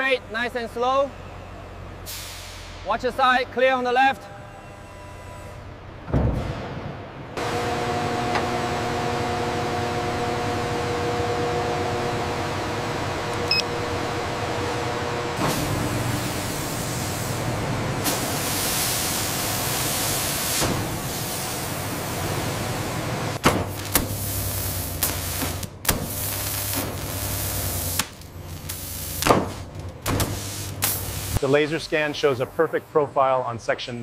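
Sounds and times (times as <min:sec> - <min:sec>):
machinery hiss: 0:02.0 - 0:03.0, 0:15.5 - 0:22.5, 0:23.9 - 0:29.6, 0:30.2 - 0:33.0
machinery clanks and knocks: 0:06.0 - 0:08.8.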